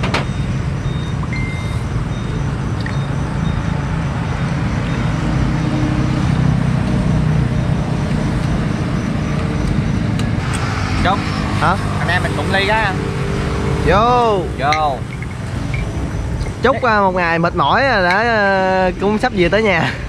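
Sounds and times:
road traffic rumble: 0.0 - 20.0
vehicle passing: 3.7 - 19.3.

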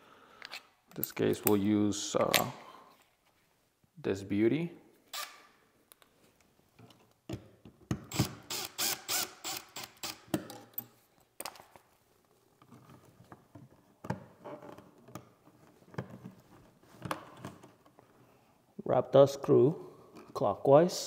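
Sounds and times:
drill-driver clicking and whirring: 8.1 - 10.2.

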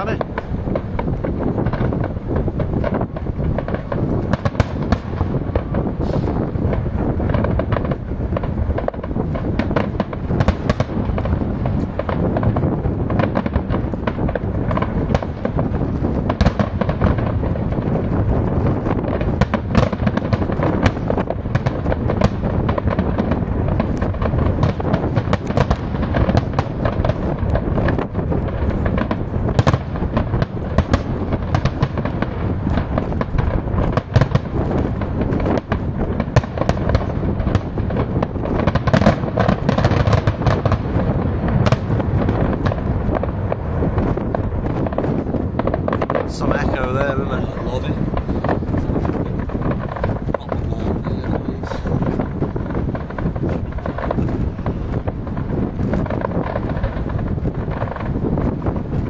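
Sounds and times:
fireworks bangs and crackles: 0.0 - 59.0
low rumble: 40.3 - 59.0.

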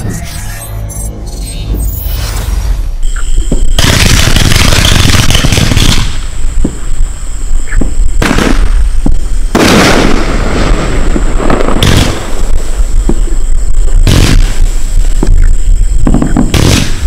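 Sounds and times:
fireworks bursting: 0.0 - 17.0
dense firework crackle: 1.7 - 17.0
sharp firework bangs: 3.4 - 7.0, 7.6 - 13.4, 14.0 - 15.4, 16.0 - 17.0.

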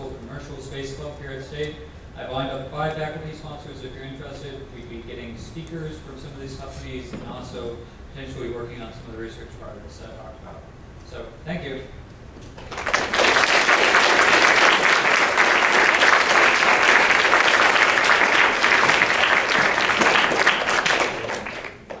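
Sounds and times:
audience applauding: 12.6 - 22.0.

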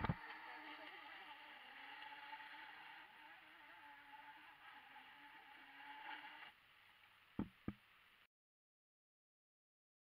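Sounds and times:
rc boat motor whine: 0.0 - 7.1.

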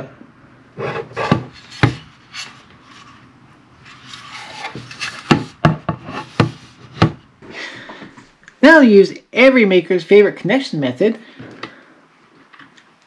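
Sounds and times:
plastic scraping on plastic: 0.8 - 3.2, 3.8 - 7.2.

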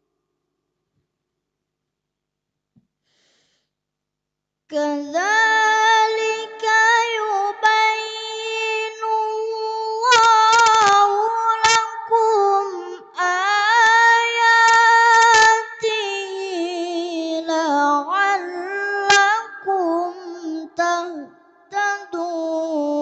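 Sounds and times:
boy reciting melodically: 4.7 - 23.0.

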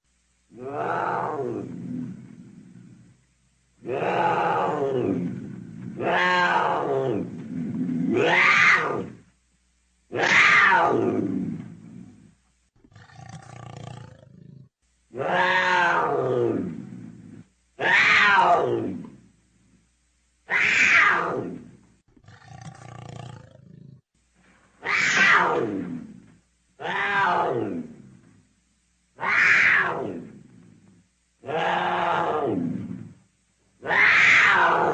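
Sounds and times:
leopard calling: 24.8 - 26.2, 29.2 - 30.7.

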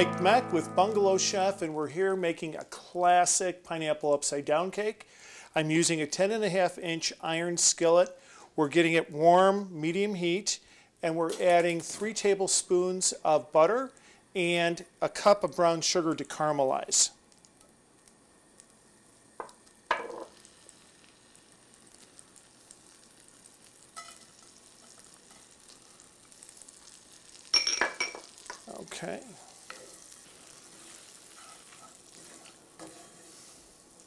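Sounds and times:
butter and sugar sizzling faintly: 0.0 - 34.0
utensils scraping and knocking pan: 30.7 - 33.4.

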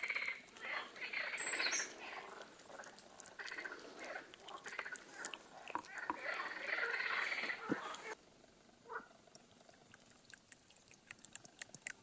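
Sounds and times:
raw chicken squishing by hand: 9.8 - 12.0.

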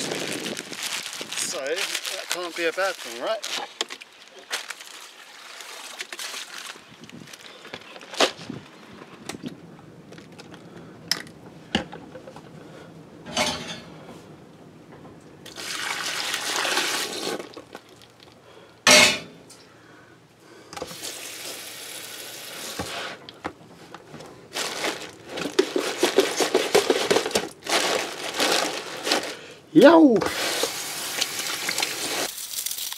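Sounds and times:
hands sloshing plastic bags: 0.0 - 8.6, 24.4 - 29.5
tap water running into tub: 15.5 - 17.7, 30.3 - 32.9.

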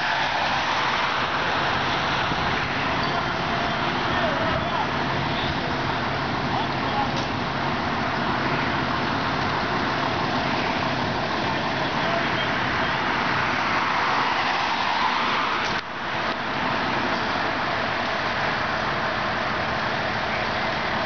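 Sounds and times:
road traffic noise: 0.0 - 21.0
car passing close by: 13.2 - 15.8.

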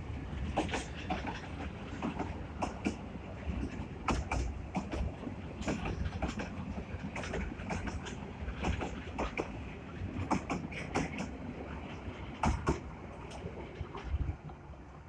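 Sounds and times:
wheels rumbling on rail: 0.0 - 15.0.

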